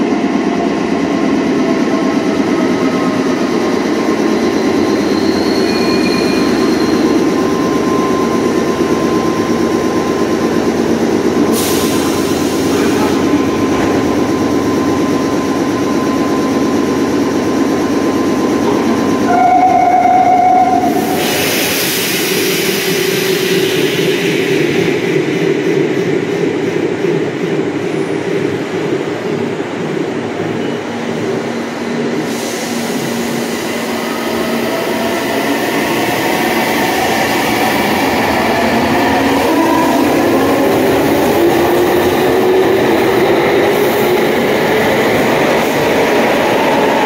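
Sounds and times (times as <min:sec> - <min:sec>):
subway train rumbling: 0:00.0 - 0:47.0
brief tone: 0:05.0 - 0:08.6, 0:19.2 - 0:20.9, 0:30.6 - 0:30.9.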